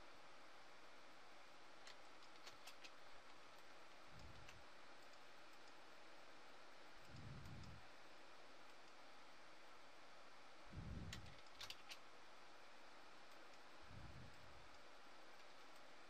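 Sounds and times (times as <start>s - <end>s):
computer mouse clicks: 1.8s - 5.8s, 11.1s - 12.0s.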